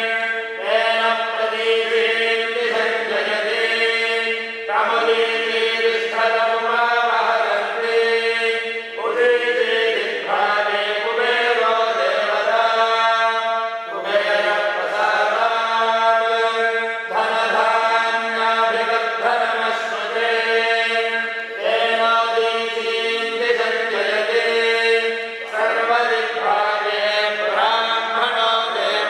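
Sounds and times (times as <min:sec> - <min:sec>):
men chanting mantras: 0:00.0 - 0:29.0.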